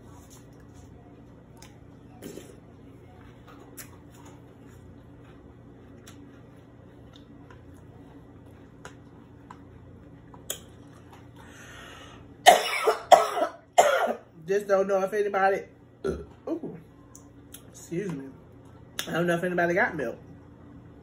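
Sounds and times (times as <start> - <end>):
chewing cereal with milk: 0.0 - 12.1
faint steady hum: 0.0 - 21.0
wet mouth clicks and squishes: 5.9 - 6.3, 10.3 - 11.3.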